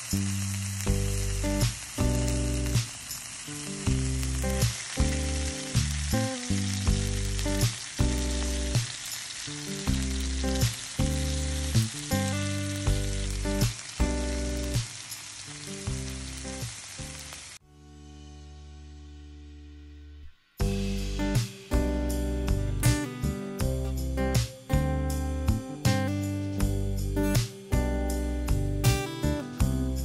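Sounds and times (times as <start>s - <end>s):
background music: 0.0s - 14.9s, 15.6s - 30.0s
meat sizzling on a griddle: 0.0s - 17.6s.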